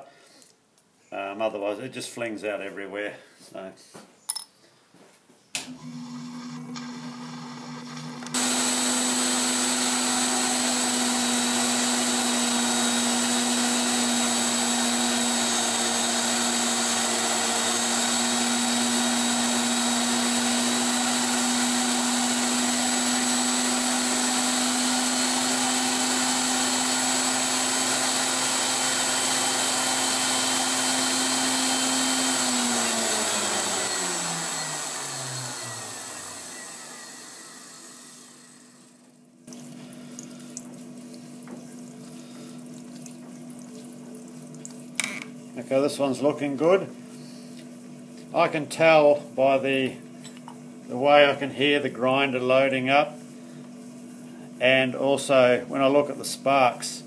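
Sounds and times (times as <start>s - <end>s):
motor winding down: 5.7s - 38.9s
grinder whining on steel: 5.7s - 39.0s.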